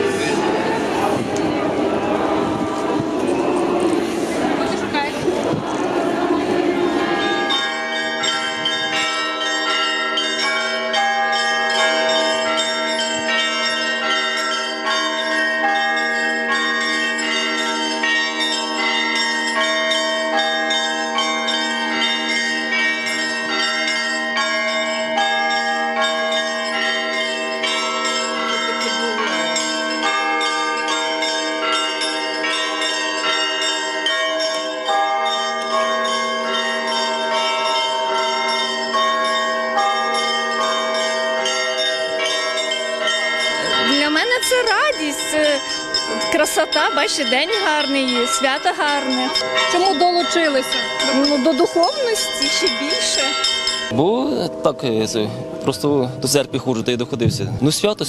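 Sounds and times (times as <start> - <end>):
crowd noise: 0.0 - 11.0, 26.8 - 31.5
church bells pealing: 0.0 - 58.0.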